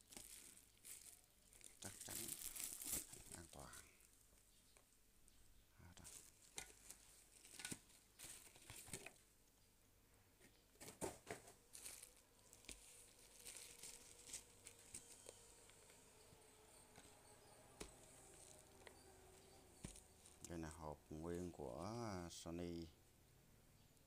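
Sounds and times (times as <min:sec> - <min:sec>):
bubble wrap crinkling: 0:00.0 - 0:04.5, 0:05.8 - 0:09.3, 0:10.9 - 0:22.0.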